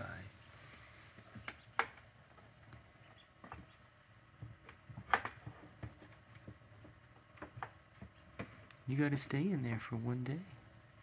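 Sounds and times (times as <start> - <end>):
duckling squeaks: 3.0 - 3.8.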